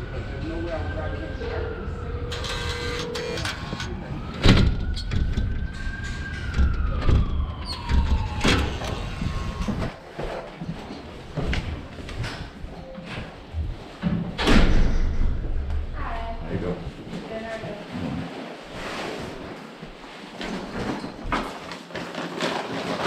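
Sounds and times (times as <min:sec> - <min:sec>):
siren rising and falling: 0:00.0 - 0:10.0
door opening and shutting: 0:02.2 - 0:10.0.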